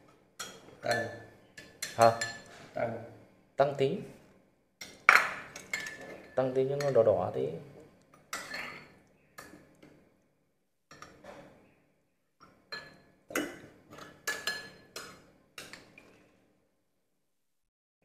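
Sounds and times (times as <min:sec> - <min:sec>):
ladle clinking against ceramic bowls: 0:00.4 - 0:02.6, 0:05.1 - 0:07.0, 0:12.7 - 0:15.8.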